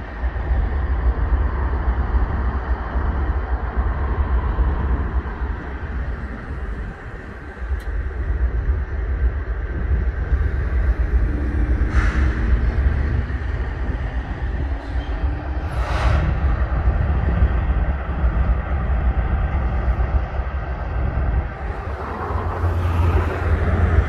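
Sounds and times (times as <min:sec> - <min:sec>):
diesel locomotive rumble: 0:00.0 - 0:24.0
short air hisses: 0:11.9 - 0:12.6.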